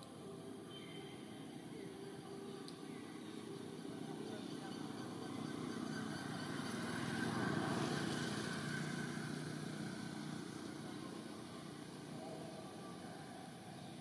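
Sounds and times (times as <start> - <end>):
motorbike passing by: 3.7 - 14.0.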